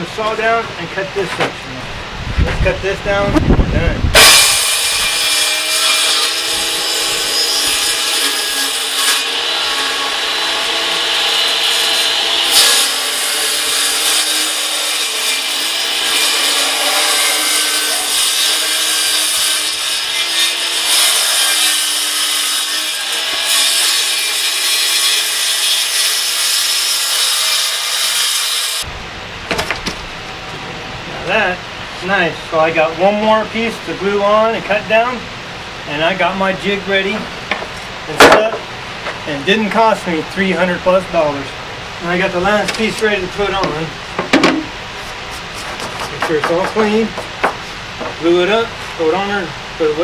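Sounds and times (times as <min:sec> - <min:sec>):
circular saw cutting plywood: 0:04.2 - 0:28.9, 0:44.5 - 0:47.8.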